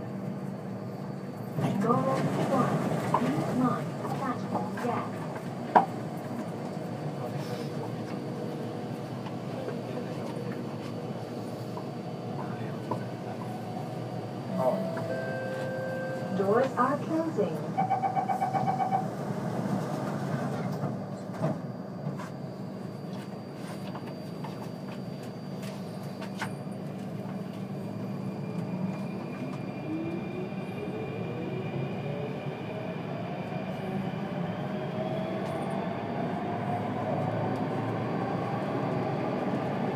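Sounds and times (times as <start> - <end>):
train wheels rumbling on rail: 0.0 - 39.9
beeping tone: 14.5 - 16.5, 17.6 - 19.2.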